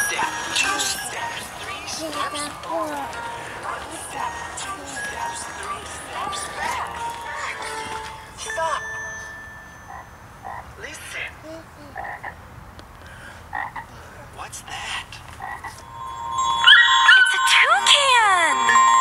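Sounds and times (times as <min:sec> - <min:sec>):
frogs croaking: 0:00.0 - 0:08.9, 0:09.8 - 0:17.6
music with sliding tones: 0:00.0 - 0:10.0, 0:15.8 - 0:19.0.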